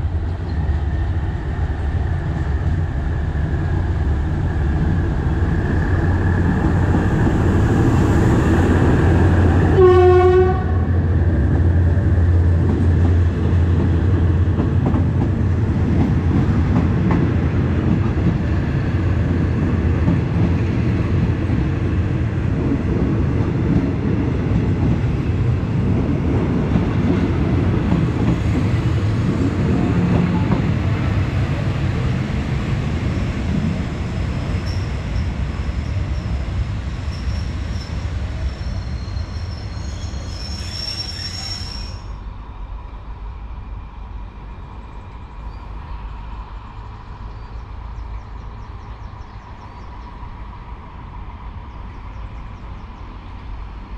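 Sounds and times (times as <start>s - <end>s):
train wheels rumbling: 0.0s - 53.9s
high-pitched wheel squeal: 37.1s - 42.2s.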